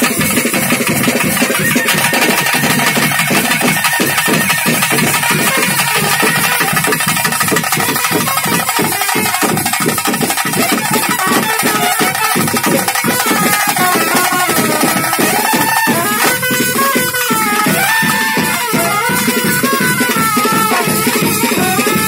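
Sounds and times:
drums beating fast rhythm: 0.0s - 22.0s
wind instrument wavering melody: 0.0s - 22.0s.

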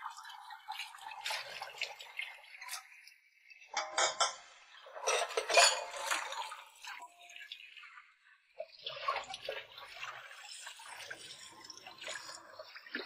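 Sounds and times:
dishes and cutlery clattering: 3.8s - 6.6s.

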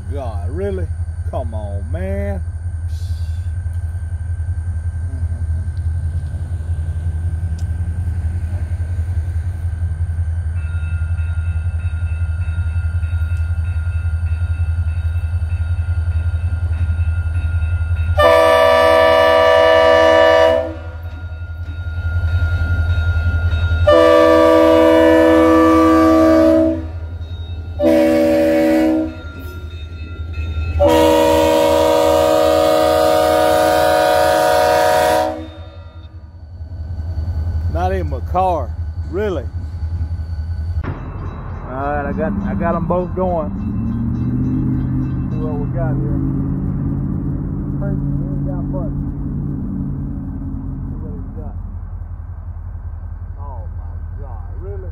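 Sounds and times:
diesel locomotive engine rumble: 0.0s - 54.9s
locomotive horn blasts: 18.2s - 21.1s, 23.8s - 27.1s, 27.8s - 29.3s, 30.8s - 36.1s.

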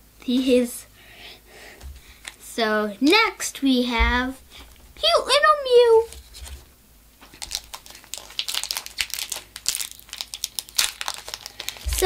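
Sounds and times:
foil wrapper crinkling: 6.0s - 12.0s.

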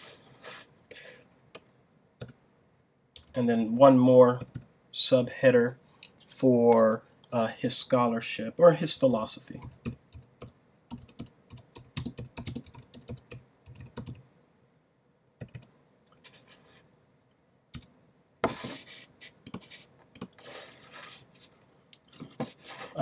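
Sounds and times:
typing on computer keyboard: 3.2s - 3.4s, 9.6s - 14.2s, 15.4s - 15.7s.

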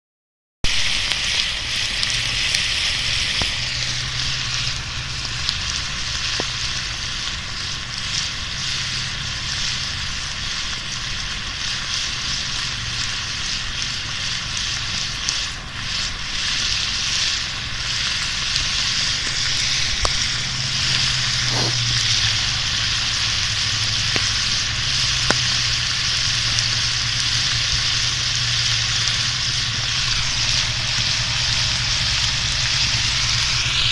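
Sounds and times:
vegetables sizzling in a skillet: 0.6s - 33.9s
sharp pops: 0.7s - 6.6s, 14.9s - 33.9s.

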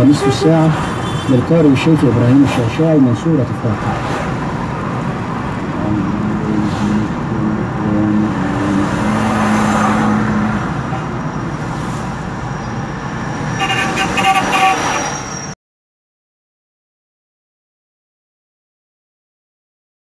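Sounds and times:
quran recitation on car radio: 0.0s - 4.1s, 5.6s - 10.9s
car road and engine noise: 0.0s - 15.6s.

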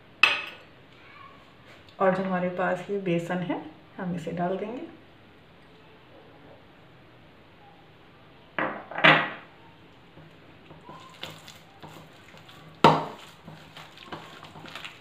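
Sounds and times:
dishware knock: 8.6s - 9.4s
hands mixing minced meat: 9.8s - 15.0s.

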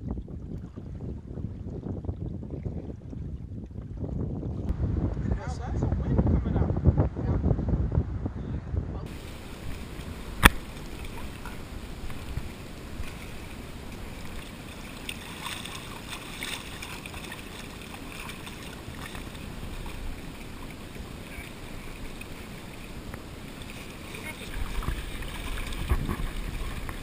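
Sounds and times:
light wind: 0.0s - 27.0s
water lapping on rocky shore: 9.1s - 27.0s
sharp click: 10.4s - 10.6s.

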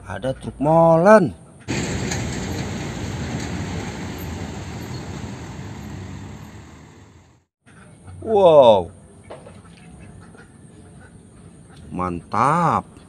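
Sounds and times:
diesel truck engine driving: 1.7s - 7.5s
traffic: 1.7s - 7.5s.

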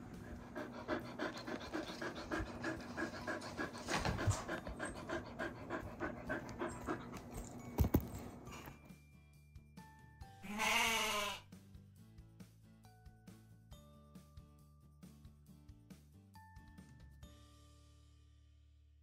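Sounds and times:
large dog panting: 0.0s - 8.4s.

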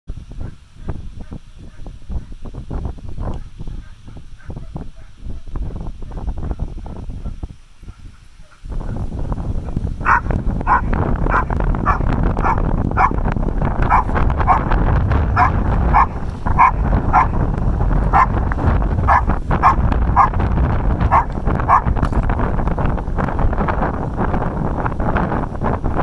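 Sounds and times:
dog barking: 0.4s - 2.4s, 3.3s - 9.0s, 10.0s - 13.2s, 13.8s - 14.8s, 15.4s - 17.5s, 18.1s - 20.4s, 21.1s - 22.0s
steady low rumble: 2.6s - 26.0s.

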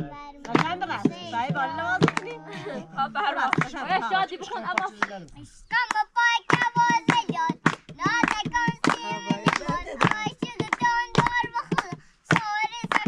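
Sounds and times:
child singing in a high voice: 0.0s - 2.6s, 5.7s - 13.0s.

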